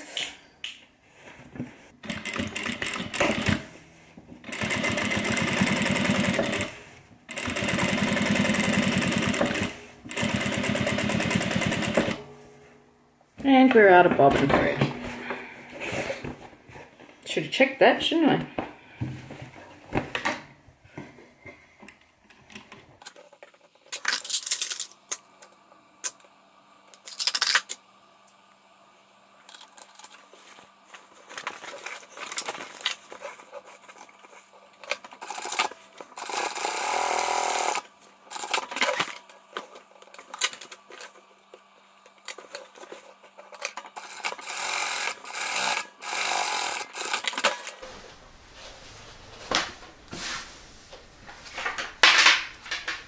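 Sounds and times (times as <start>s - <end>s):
sewing machine stitching: 2.0s - 3.8s, 4.4s - 12.2s, 35.2s - 38.6s
clicks and knocks of handling: 51.5s - 53.0s.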